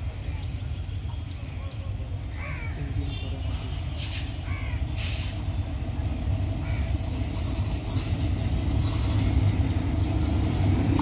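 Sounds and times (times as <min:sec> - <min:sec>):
locomotive engine rumble: 0:00.0 - 0:11.0
short hissing: 0:03.6 - 0:05.5.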